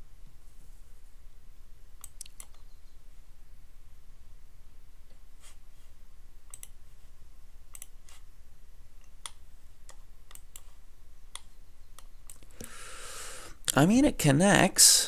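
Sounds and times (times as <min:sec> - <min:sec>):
low steady hum: 0:00.0 - 0:15.0
computer mouse clicking: 0:02.0 - 0:02.7, 0:06.5 - 0:06.8, 0:07.7 - 0:08.2, 0:09.0 - 0:12.7.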